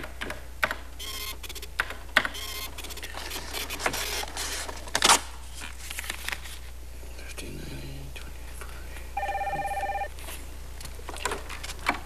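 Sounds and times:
print mechanism chattering: 1.0 - 4.3.

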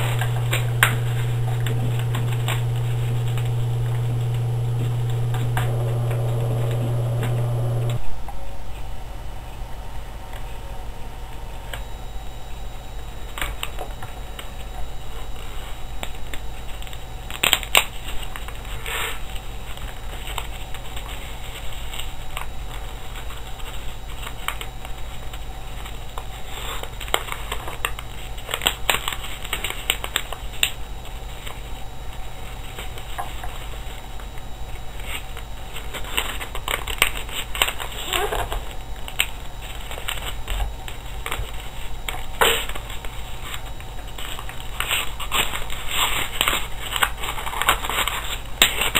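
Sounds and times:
low hum: 0.0 - 17.4
paper rustling and crinkling: 13.2 - 48.9.

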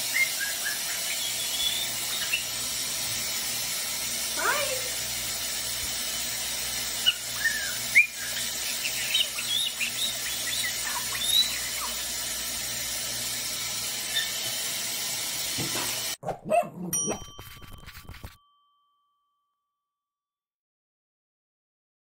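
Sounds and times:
parrot whistling and chirping: 0.0 - 2.8, 6.9 - 12.3, 13.3 - 14.7
shower running: 0.0 - 16.2.

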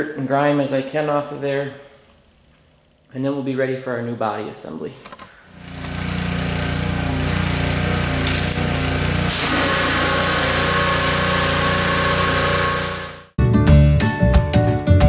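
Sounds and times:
pressure washer motor drone: 5.5 - 13.4
high-pressure water spray hiss: 9.3 - 13.3.

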